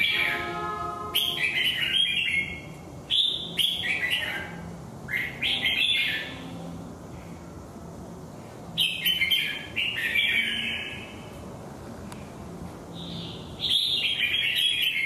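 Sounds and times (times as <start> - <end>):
bulbul singing: 0.0 - 6.7, 8.8 - 11.2, 12.9 - 15.0.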